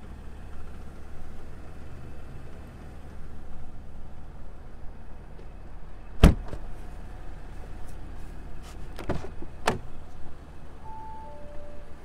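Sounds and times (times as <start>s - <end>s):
car door shutting thump: 6.2s - 6.7s, 9.0s - 9.9s
car chime tone: 10.8s - 12.0s.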